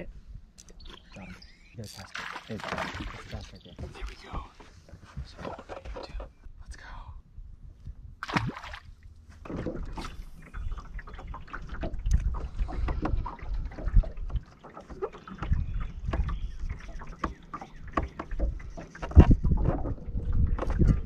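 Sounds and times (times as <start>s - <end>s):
water slapping against boat hull: 2.1s - 6.3s, 8.2s - 21.0s
fish splashing into water: 8.2s - 8.9s
wind buffeting microphone: 9.8s - 14.4s, 18.3s - 21.0s.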